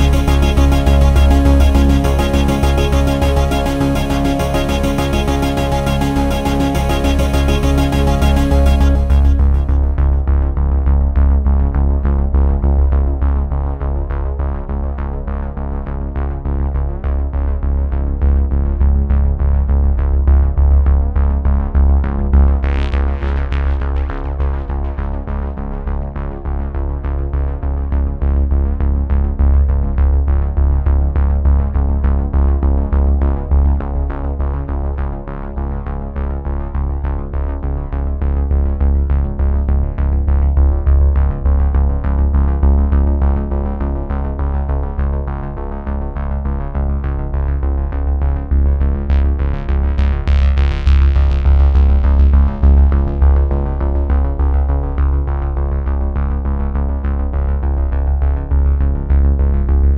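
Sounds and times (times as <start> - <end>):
electronic music with beat: 0.0 - 10.3.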